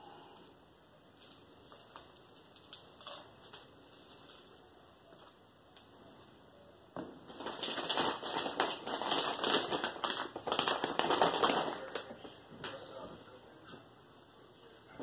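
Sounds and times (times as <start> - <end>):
hands rustling potting mix: 1.1 - 6.4, 7.1 - 13.9.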